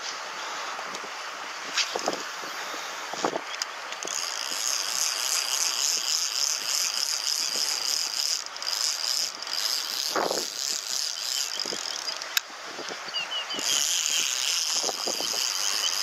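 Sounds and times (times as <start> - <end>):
fishing reel gear rattle: 3.5 - 12.5, 13.5 - 16.0.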